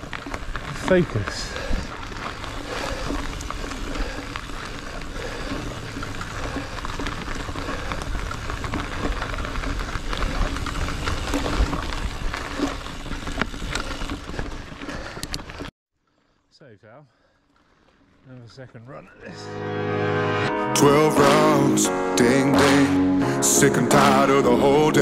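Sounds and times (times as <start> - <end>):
bike clicks and rattles: 0.0 - 15.7
bike tyres rushing on dirt trail: 0.0 - 16.5, 17.1 - 19.4.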